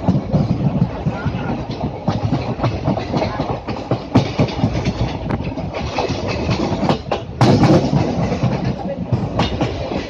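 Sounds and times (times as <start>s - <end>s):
train wheels clattering on rails: 0.0s - 10.0s.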